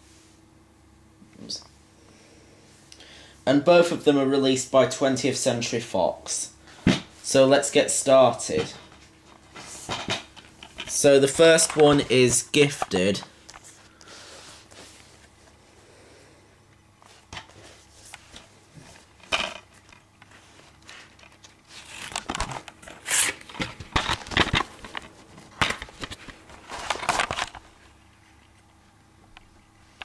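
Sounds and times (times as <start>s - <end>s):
plastic dvd case crinkling and clicking: 19.2s - 27.7s.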